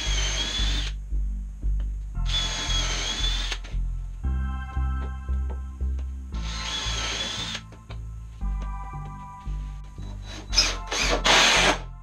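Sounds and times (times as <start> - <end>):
power drill whining: 0.0 - 1.0, 2.2 - 3.7, 6.4 - 7.6, 10.0 - 11.9
background music with bass beat: 3.6 - 12.0.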